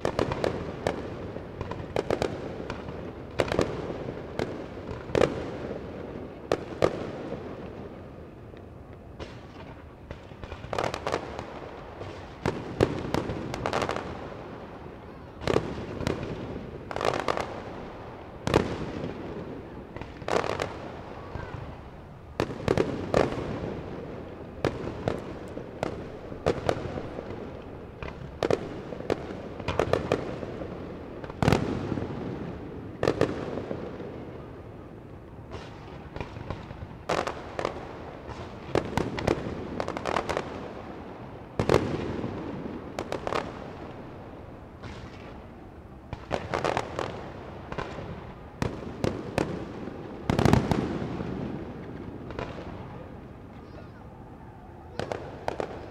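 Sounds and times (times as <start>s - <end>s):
fireworks crackle and rumble: 0.0s - 55.9s
fireworks bangs: 9.1s - 34.6s, 35.4s - 45.5s, 46.1s - 54.1s, 54.9s - 55.9s.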